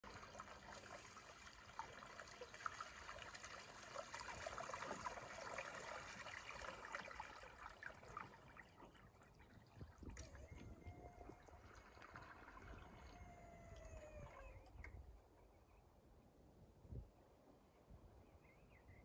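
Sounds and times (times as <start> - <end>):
small water splashes: 0.0 - 15.0
water lapping and trickling: 0.0 - 15.3.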